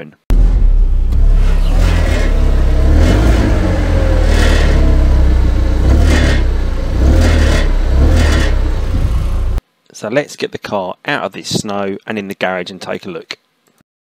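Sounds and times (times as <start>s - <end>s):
car engine running: 0.3s - 9.6s
metallic exhaust rattle: 0.3s - 9.6s.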